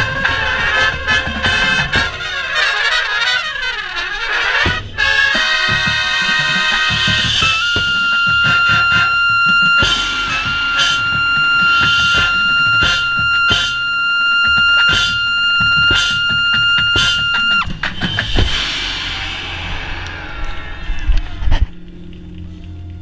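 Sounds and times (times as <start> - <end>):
heavy drumming: 0.0 - 2.8, 4.5 - 21.9
trumpet high held note: 0.0 - 17.8
cymbal crashes: 4.6 - 21.9.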